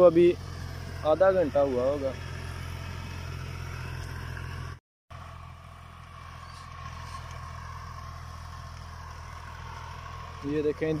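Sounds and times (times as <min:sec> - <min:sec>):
tractor engine humming: 0:00.0 - 0:11.0.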